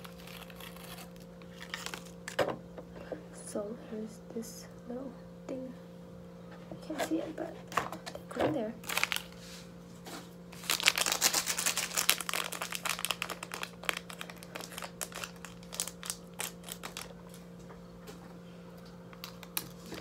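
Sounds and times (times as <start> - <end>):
plastic sachet crinkling: 0.0 - 2.2, 8.8 - 9.4, 10.5 - 17.4, 19.1 - 20.0
low steady hum: 0.0 - 20.0.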